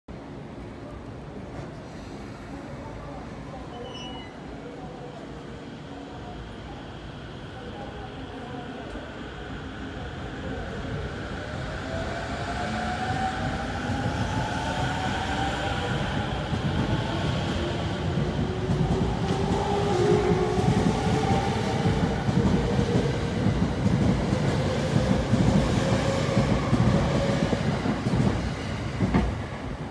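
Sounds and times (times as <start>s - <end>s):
train wheels rumbling on rails: 10.5s - 29.9s.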